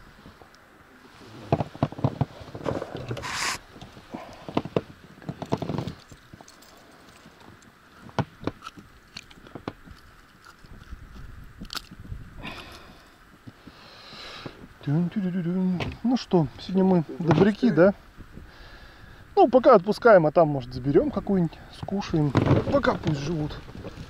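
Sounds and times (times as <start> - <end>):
clicks knocks and scraping: 1.4 - 6.7, 21.8 - 24.0
short hissy burst: 3.2 - 3.6.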